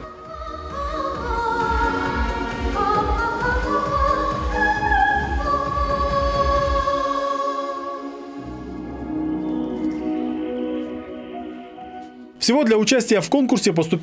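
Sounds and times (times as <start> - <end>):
backing track with pulsing beat: 0.0 - 7.2.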